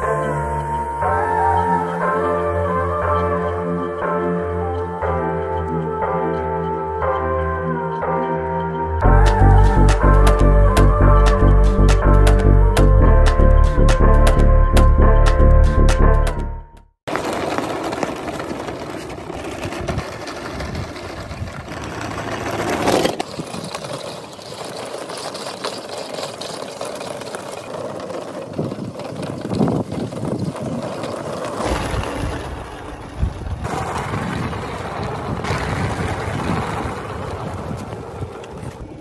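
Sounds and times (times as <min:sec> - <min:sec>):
tyres rolling over gravel: 0:17.1 - 0:39.0.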